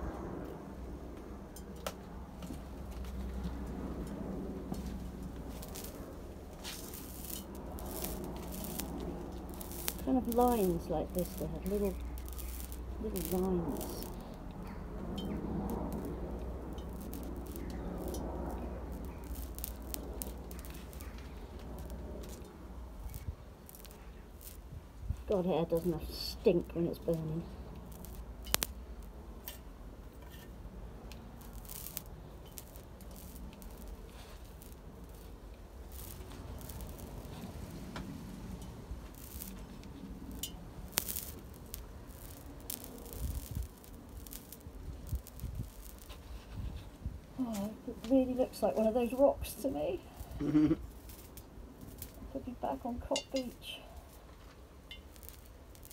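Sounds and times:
horsehair crackling as it burns: 0.0s - 55.9s
low steady rumble: 0.0s - 55.9s
metal tweezers clicking: 28.0s - 28.7s.

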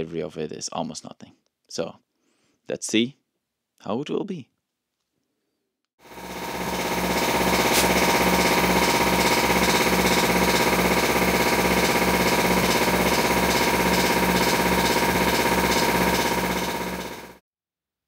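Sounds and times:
air compressor running: 6.0s - 17.4s.

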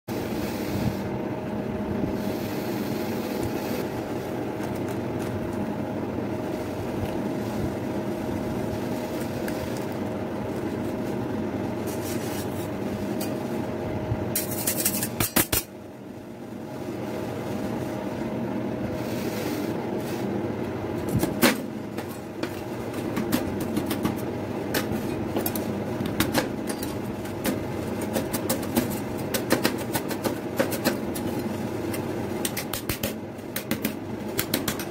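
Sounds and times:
refrigeration unit humming: 0.1s - 34.9s
metal spatulas scraping steel plate: 14.4s - 15.7s.

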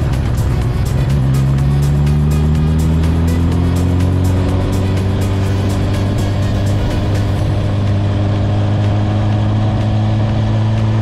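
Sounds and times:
motorcycle engine running: 0.0s - 11.0s
music playing: 0.0s - 11.0s.

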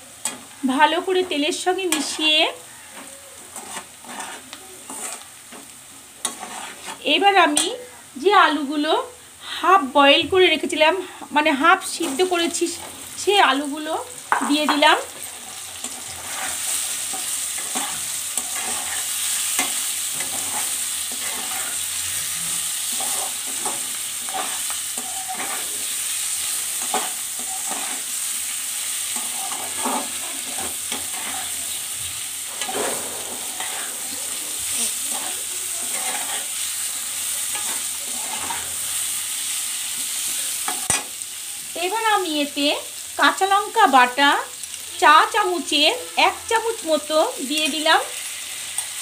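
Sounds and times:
potatoes sizzling in oil: 0.0s - 49.0s
metal spatula scraping pan: 1.2s - 7.7s, 14.3s - 39.1s.

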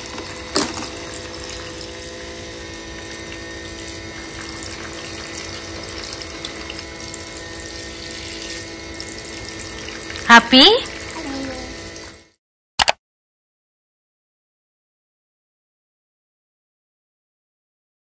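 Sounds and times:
tap water running into sink: 0.0s - 12.2s.

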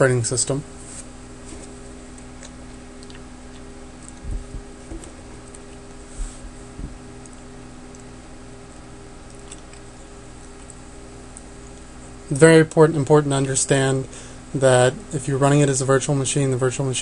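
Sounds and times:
low hum: 0.0s - 16.7s
soft thumps: 6.2s - 7.0s.

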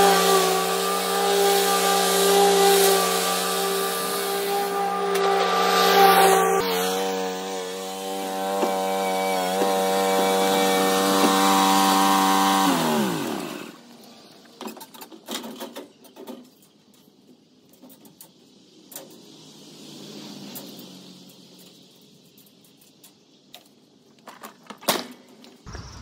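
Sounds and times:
mower engine running: 0.0s - 13.8s, 25.7s - 26.0s.

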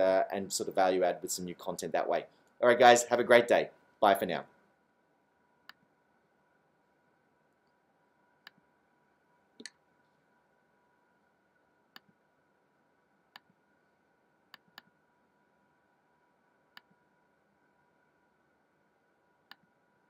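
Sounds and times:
faint steady tone: 3.6s - 20.0s
computer mouse clicking: 14.5s - 14.9s, 19.5s - 19.7s.

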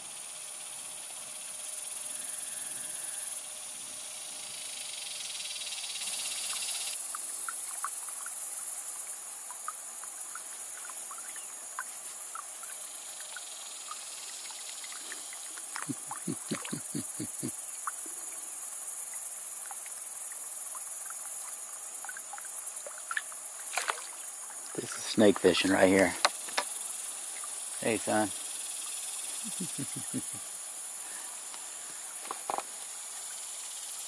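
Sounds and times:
insects chirring: 0.0s - 34.0s
small splashes on water: 20.7s - 24.6s.

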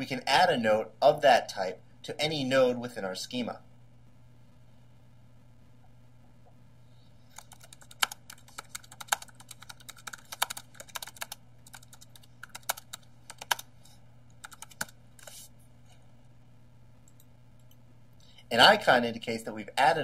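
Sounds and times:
typing on computer keyboard: 7.3s - 13.7s, 14.4s - 15.3s.

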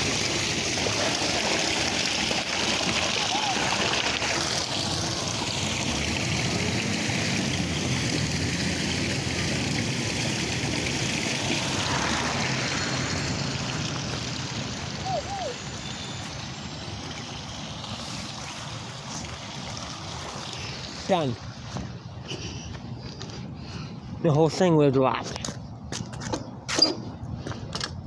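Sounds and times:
water rushing in gutter: 0.0s - 22.2s.

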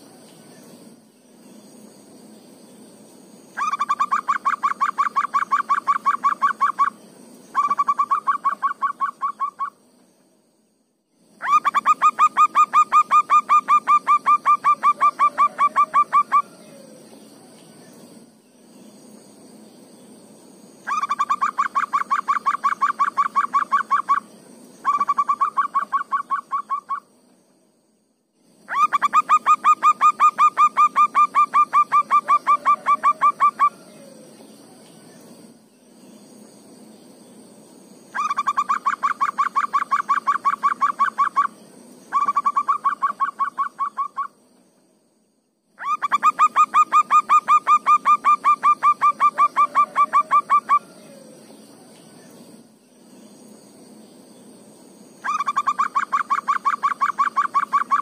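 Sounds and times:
dove cooing: 11.4s - 17.1s, 28.7s - 34.4s, 45.8s - 51.5s.

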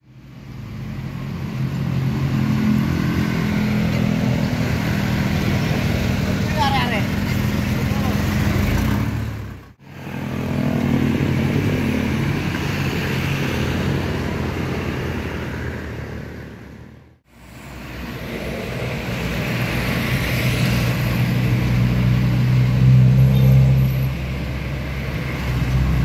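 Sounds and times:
motorcycles approaching: 1.2s - 16.7s.

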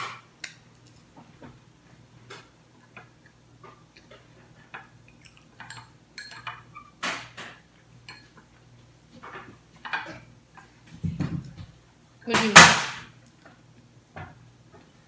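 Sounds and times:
chewing: 5.0s - 5.6s.

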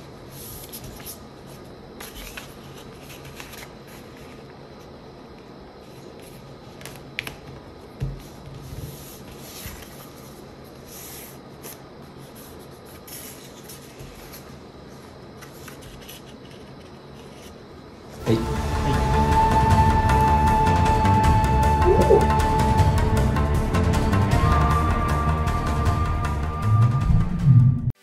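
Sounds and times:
paper folding and rustling: 0.0s - 4.9s, 5.8s - 17.6s.

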